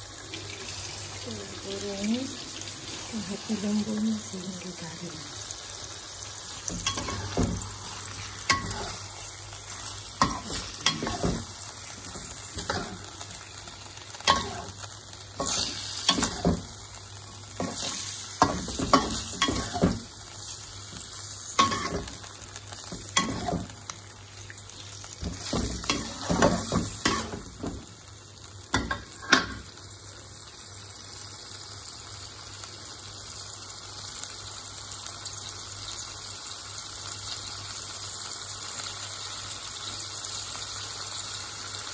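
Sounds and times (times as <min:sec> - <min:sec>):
liver sizzling in a wok: 0:00.0 - 0:41.9
metal spatula scraping a wok: 0:06.7 - 0:11.4, 0:17.6 - 0:20.0, 0:23.2 - 0:23.7.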